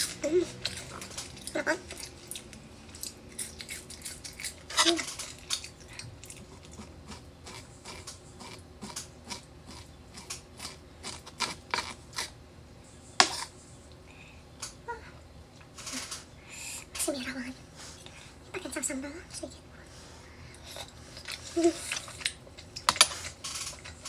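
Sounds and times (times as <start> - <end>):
chewing: 0.0 - 12.4.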